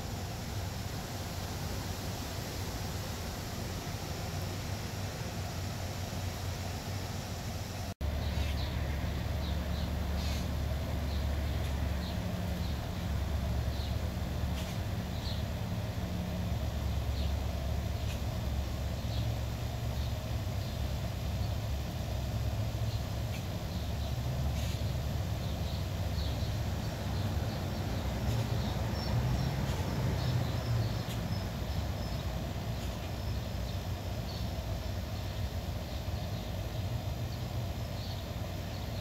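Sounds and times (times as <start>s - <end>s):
faint bird chirps: 8.2s - 10.5s.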